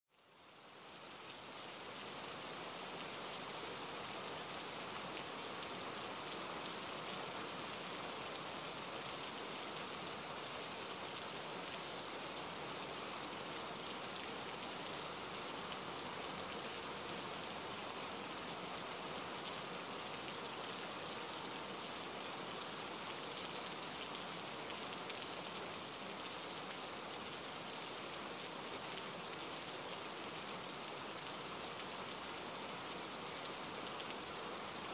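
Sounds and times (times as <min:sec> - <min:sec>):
steady rainfall: 0:00.1 - 0:34.9.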